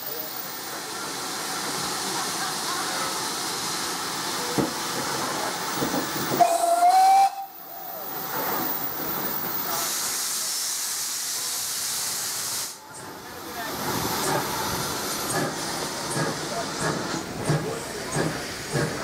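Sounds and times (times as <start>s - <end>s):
steam hissing: 0.0s - 19.0s
steam whistle blast: 6.4s - 7.9s.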